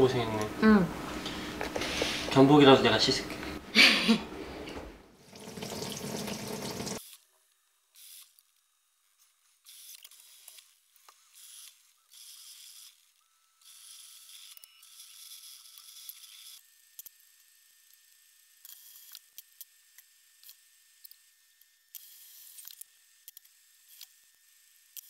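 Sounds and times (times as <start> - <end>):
water hiss in sink: 5.2 - 7.0.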